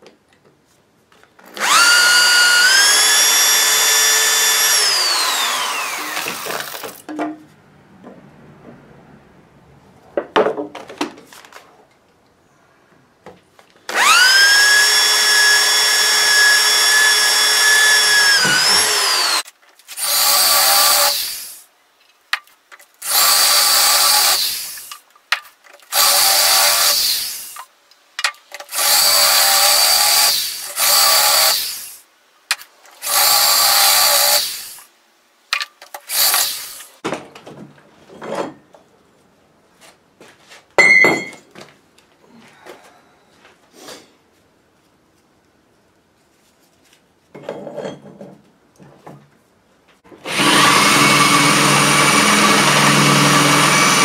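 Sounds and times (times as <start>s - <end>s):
electric drill boring into steel: 1.6s - 7.0s, 13.9s - 21.6s, 23.0s - 24.9s, 25.9s - 27.6s, 28.7s - 32.0s, 33.0s - 34.9s, 36.1s - 37.0s, 50.2s - 54.0s.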